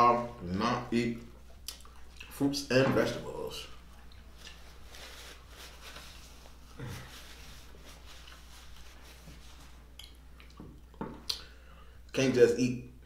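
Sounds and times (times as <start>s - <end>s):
paper napkin rustling: 4.3s - 9.9s.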